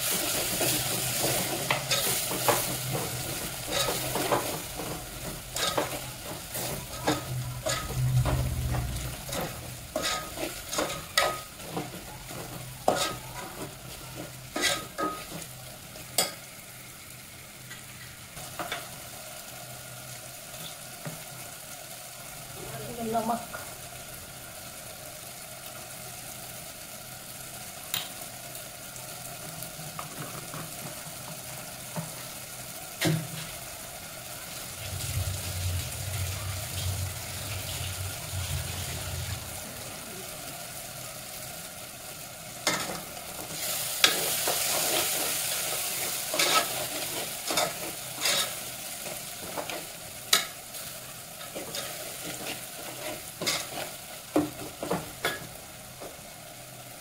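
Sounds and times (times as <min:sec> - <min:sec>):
spoon stirring and scraping pot: 0:00.0 - 0:15.5, 0:42.6 - 0:55.4
masala sizzling in a pot: 0:00.0 - 0:57.0
low hum: 0:06.8 - 0:10.0, 0:34.6 - 0:41.2.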